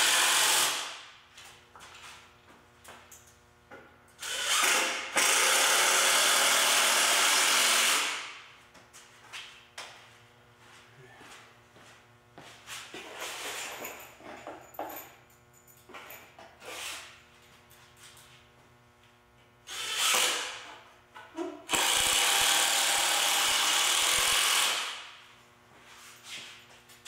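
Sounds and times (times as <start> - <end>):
impact driver driving screws: 19.7 - 20.7, 21.7 - 25.0.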